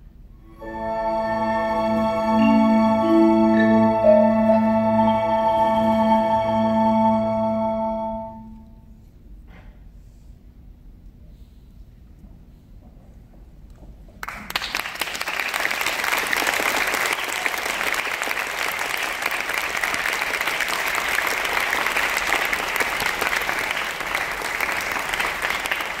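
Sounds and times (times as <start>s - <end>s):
audience applause: 14.2s - 26.0s.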